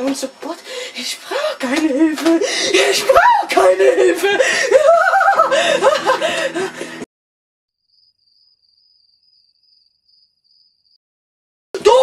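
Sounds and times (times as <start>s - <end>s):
boy yelling: 2.2s - 4.3s, 11.8s - 12.0s
crickets chirping: 7.8s - 11.0s.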